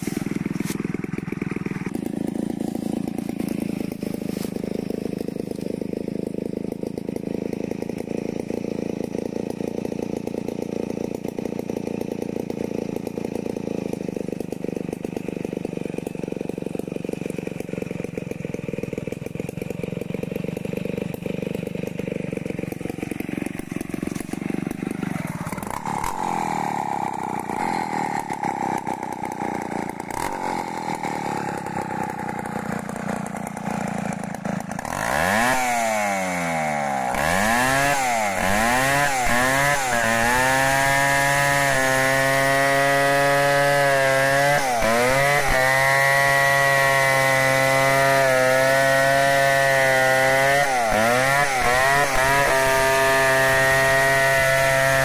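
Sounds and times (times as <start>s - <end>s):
chainsaw engine running: 0.0s - 55.0s.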